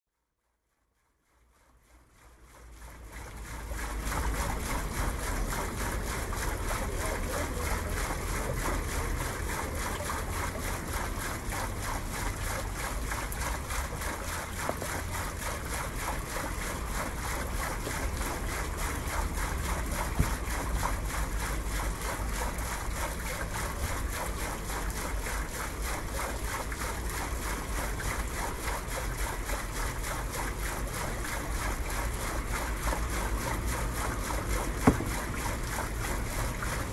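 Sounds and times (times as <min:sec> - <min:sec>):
short knock: 0:34.8 - 0:35.1.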